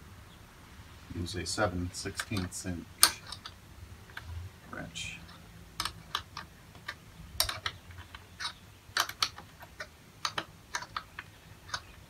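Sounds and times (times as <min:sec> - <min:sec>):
wrench clicking on metal: 0:02.1 - 0:03.6, 0:05.2 - 0:12.0.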